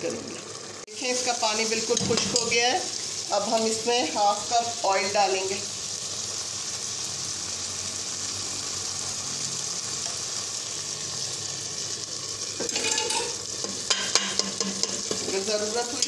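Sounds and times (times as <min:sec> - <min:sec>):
beef sizzling in a pot: 0:00.0 - 0:16.0.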